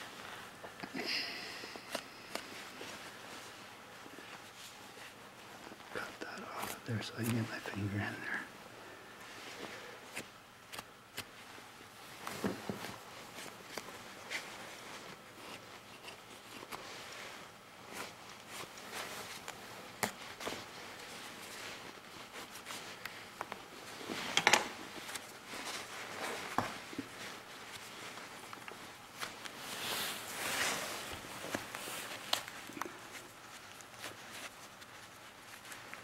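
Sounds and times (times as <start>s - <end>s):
rustle of fur and skin: 11.3s - 36.0s.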